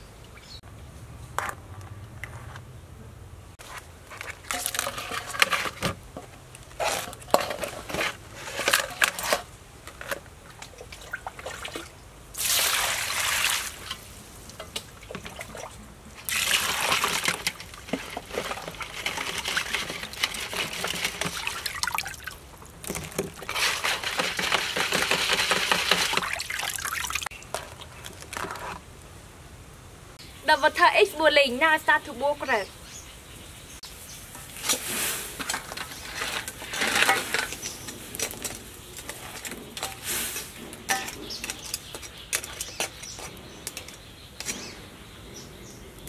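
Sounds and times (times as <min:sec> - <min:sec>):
pot of water boiling: 0:04.5 - 0:28.8
water splashing in a bowl: 0:10.4 - 0:28.4.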